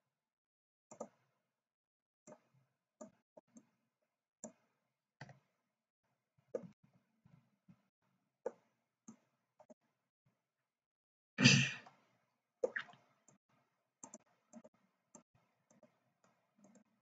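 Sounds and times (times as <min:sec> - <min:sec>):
mouse and keyboard clicks: 0:00.9 - 0:01.2.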